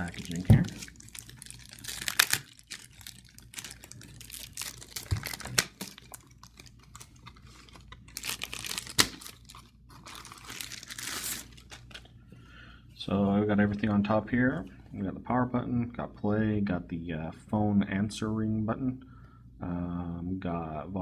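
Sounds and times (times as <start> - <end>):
plastic wrap crinkling and tearing: 0.0 - 12.1.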